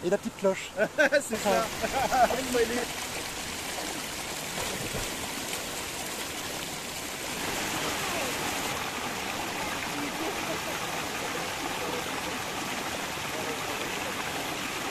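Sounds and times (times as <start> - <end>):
water rushing over small waterfall: 0.0 - 14.9
person splashing into water: 4.5 - 5.3.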